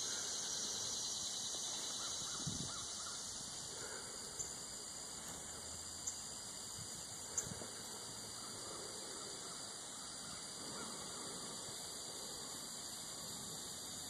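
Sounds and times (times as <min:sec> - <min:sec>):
faint bird calls: 0:00.0 - 0:06.3, 0:07.2 - 0:12.6
steady high hiss: 0:00.0 - 0:14.0.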